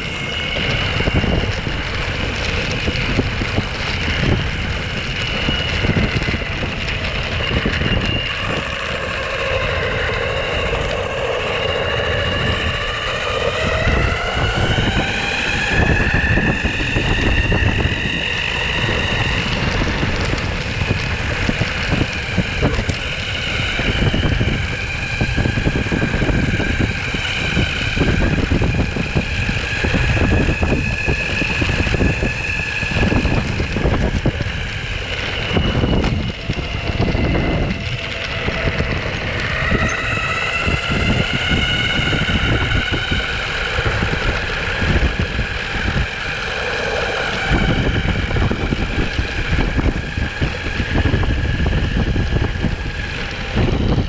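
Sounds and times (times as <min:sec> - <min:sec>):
electric motor and belt whine: 0:00.0 - 0:54.0
rubber wheels rolling: 0:00.0 - 0:54.0
wind buffeting microphone: 0:00.0 - 0:54.0.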